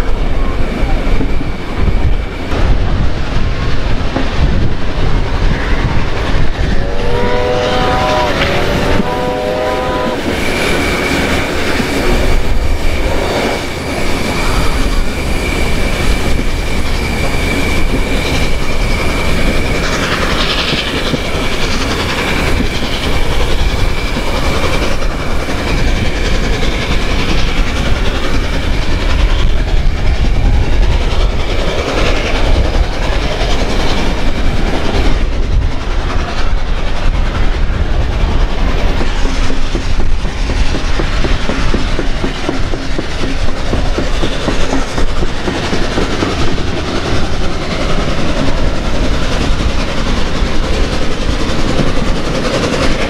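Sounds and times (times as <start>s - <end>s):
train wheels rumbling on track: 0.0s - 53.0s
high wheel squeal: 5.4s - 29.6s
locomotive chime whistle: 6.8s - 11.1s.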